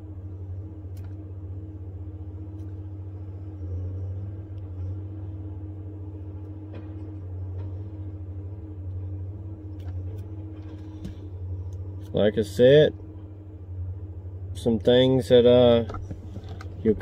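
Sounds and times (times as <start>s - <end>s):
vehicle engine idling: 0.0s - 17.0s.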